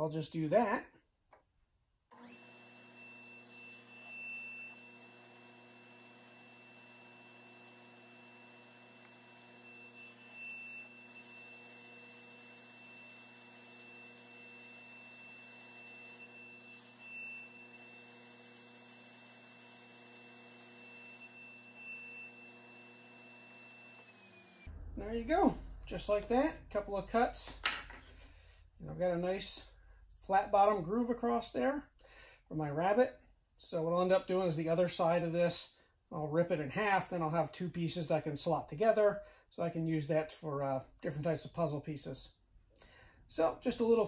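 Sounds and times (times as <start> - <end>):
table saw motor hum and blade whine: 2.2 - 26.9.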